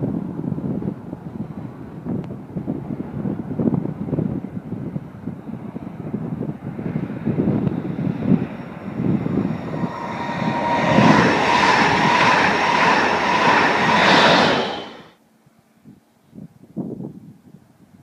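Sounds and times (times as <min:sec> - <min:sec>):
wind buffeting microphone: 0:00.0 - 0:15.1
train passing at speed: 0:05.4 - 0:15.2.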